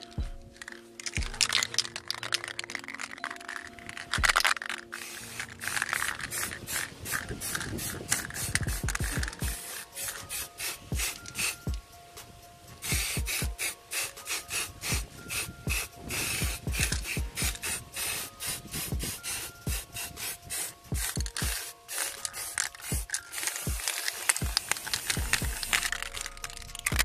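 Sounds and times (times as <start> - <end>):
spray paint can hissing: 0.0 - 27.0
wind knocking on microphone: 7.0 - 9.5.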